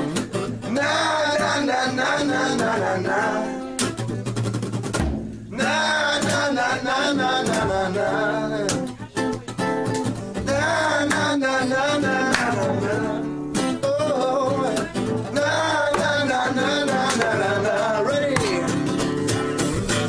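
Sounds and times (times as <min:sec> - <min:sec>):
man singing: 0:00.0 - 0:04.3, 0:05.5 - 0:09.7, 0:10.4 - 0:19.9
strummed acoustic guitar: 0:00.0 - 0:20.0
drum kit: 0:03.8 - 0:05.5.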